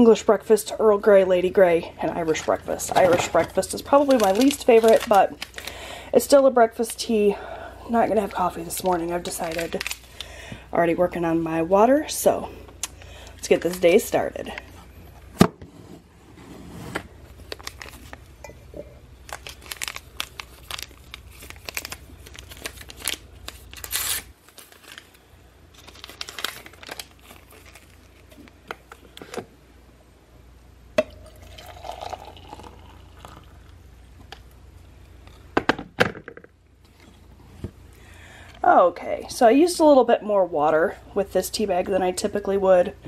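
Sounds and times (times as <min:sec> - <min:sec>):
paper crinkling and tearing: 0:03.0 - 0:05.7, 0:08.8 - 0:10.2, 0:17.4 - 0:18.2, 0:19.3 - 0:28.5
hot water pouring into mug: 0:31.2 - 0:33.6.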